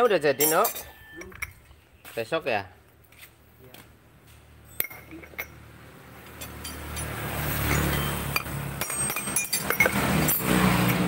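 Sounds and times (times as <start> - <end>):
passing vehicle engine and tyres: 3.1 - 11.0.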